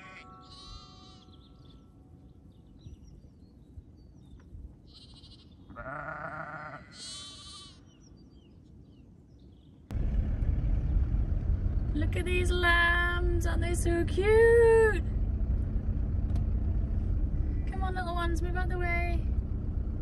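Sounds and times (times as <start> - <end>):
sheep and lambs bleating: 0.0 - 1.6, 4.9 - 7.9.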